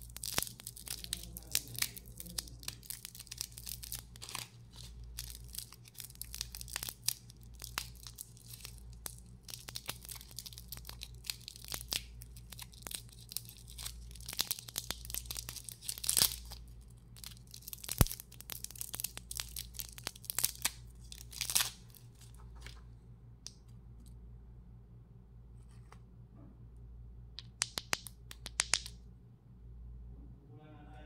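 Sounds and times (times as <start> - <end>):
plastic wrapper crinkling: 0.0 - 22.9.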